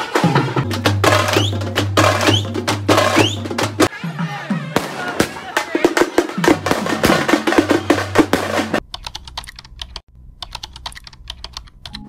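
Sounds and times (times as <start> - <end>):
drum-heavy music: 0.0 - 8.8
keyboard typing clicks: 8.9 - 12.0.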